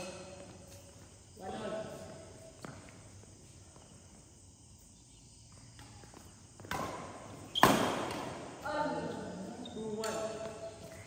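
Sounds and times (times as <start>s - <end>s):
faint footsteps on court: 0.3s - 7.5s
racket hitting shuttlecock: 5.8s - 8.6s, 9.9s - 11.0s.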